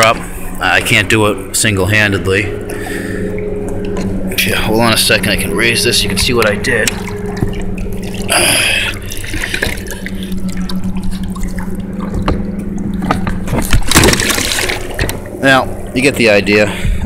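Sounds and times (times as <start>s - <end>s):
water rush: 0.0s - 16.9s
steady low hum: 0.0s - 17.0s
water dripping and splashing: 2.6s - 4.3s, 5.9s - 15.4s.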